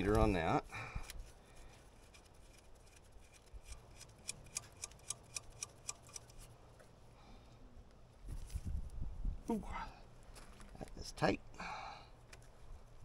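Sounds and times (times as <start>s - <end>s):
ratchet clicking: 2.0s - 6.5s.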